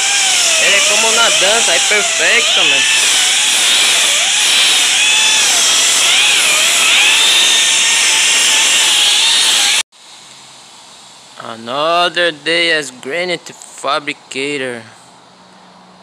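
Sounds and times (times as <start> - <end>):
wet polisher whining on stone: 0.0 - 9.8.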